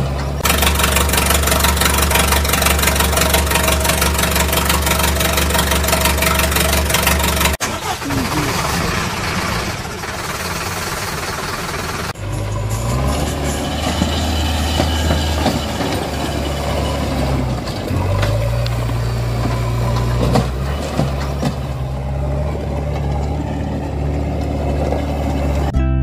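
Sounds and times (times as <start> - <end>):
heavy machinery engine rumble: 0.0 - 25.8.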